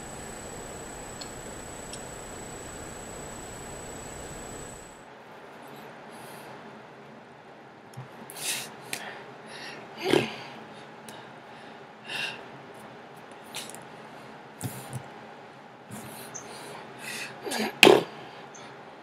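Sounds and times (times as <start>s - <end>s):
background hiss: 0.0s - 5.0s.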